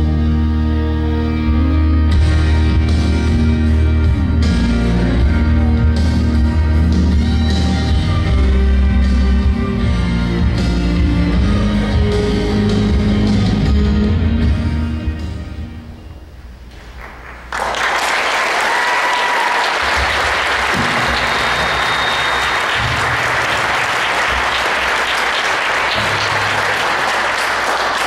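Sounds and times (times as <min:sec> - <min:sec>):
music: 0:00.0 - 0:16.6, 0:19.9 - 0:28.0
audience applauding: 0:16.9 - 0:28.0.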